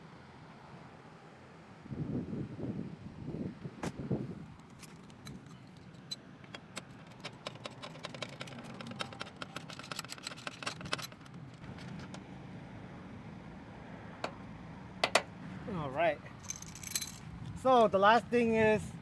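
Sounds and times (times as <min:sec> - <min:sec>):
hand ratchet clicking: 0:06.0 - 0:11.4.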